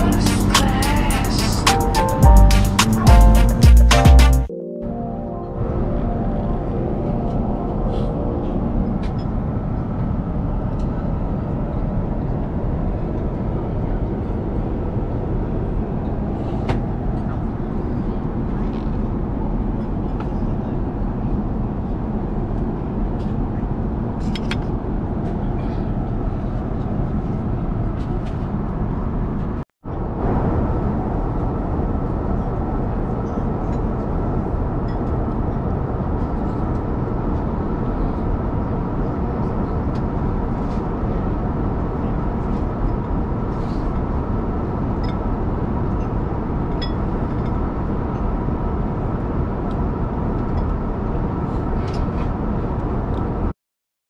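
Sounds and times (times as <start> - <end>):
faint steady high tones: 0.0 - 9.8.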